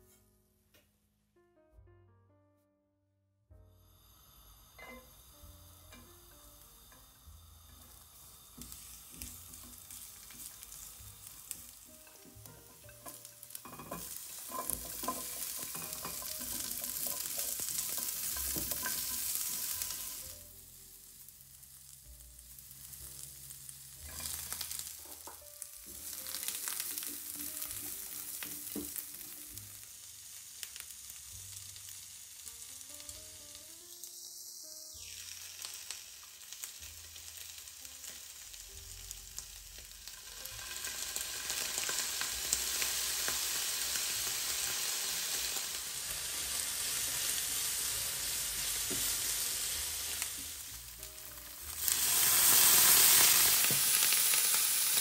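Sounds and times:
food sizzling in oil: 0:03.8 - 0:55.0
knocks of stirring in pan: 0:07.7 - 0:20.3.

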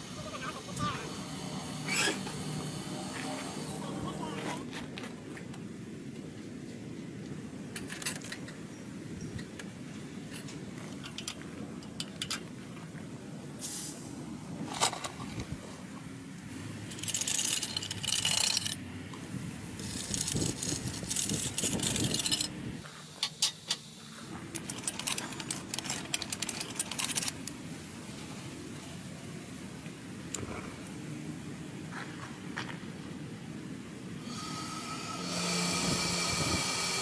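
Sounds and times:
hissing scraping: 0:34.2 - 0:37.0.

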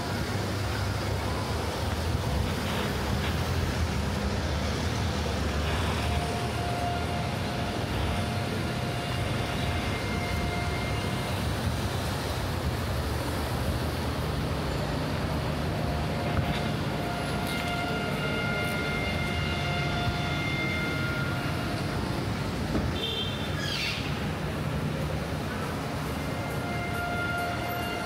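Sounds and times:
traffic rumble: 0:00.0 - 0:28.0.

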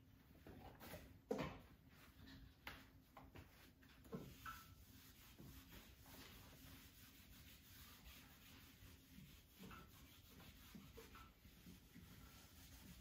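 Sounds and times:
eraser rubbing on whiteboard: 0:04.2 - 0:13.0.

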